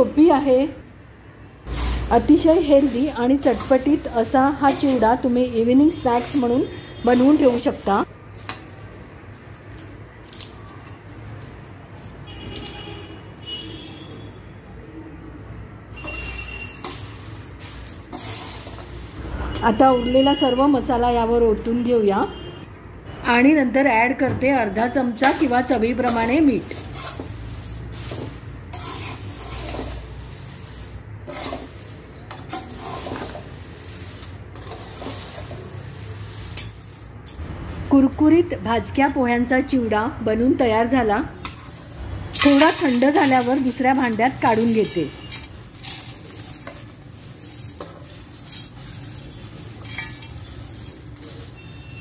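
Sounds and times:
spoons scraping dry snack mix: 0:01.6 - 0:08.1, 0:16.0 - 0:19.2, 0:26.0 - 0:37.9, 0:41.5 - 0:52.0
spoon clinking metal pan: 0:42.4 - 0:51.0.

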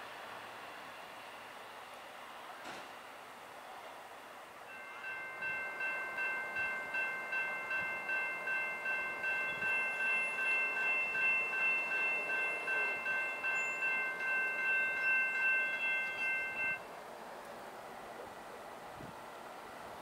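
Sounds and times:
level crossing bell ringing: 0:04.7 - 0:16.8.

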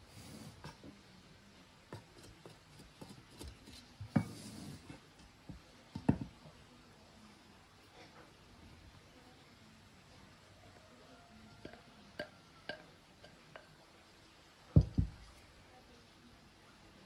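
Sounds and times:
wooden spoon scraping a pot: 0:02.0 - 0:05.1.

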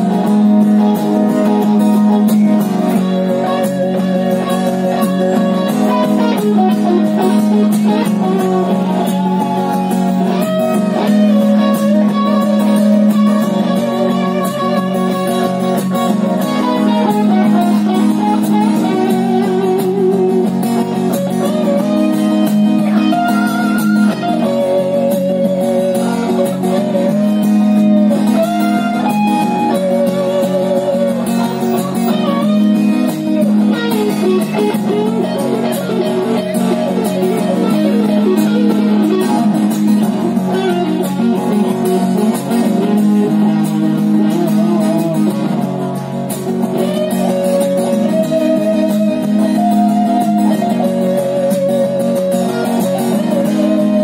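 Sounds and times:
electric guitar lead melody: 0:00.0 - 0:54.0
strummed acoustic guitar chords: 0:00.0 - 0:54.0.

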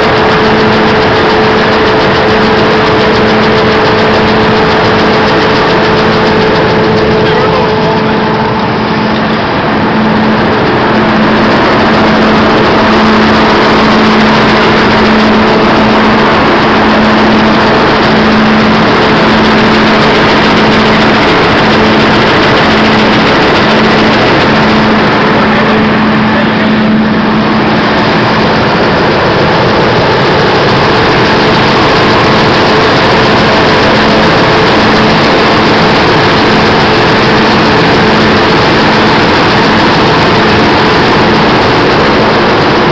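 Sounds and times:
separator machine humming: 0:00.0 - 0:42.9.

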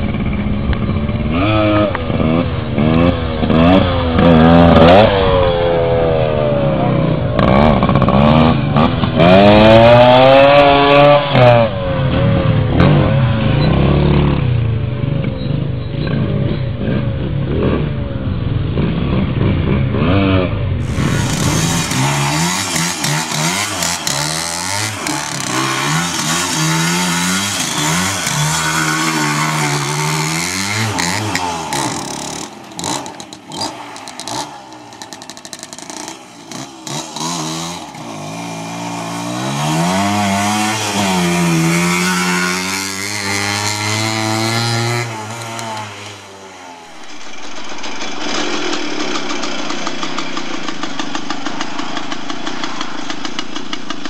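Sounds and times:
two-stroke minibike engine revving: 0:00.0 - 0:54.0.

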